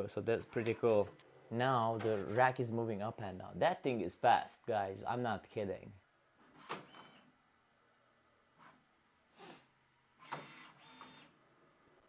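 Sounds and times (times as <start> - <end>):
printer motors whirring: 10.2 - 11.4.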